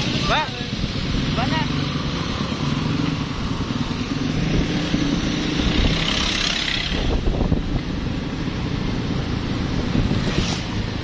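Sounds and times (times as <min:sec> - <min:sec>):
wind on microphone: 0:03.2 - 0:11.0.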